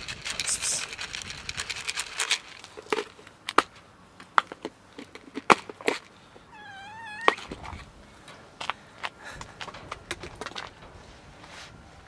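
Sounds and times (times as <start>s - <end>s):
cat meowing: 6.5s - 7.5s.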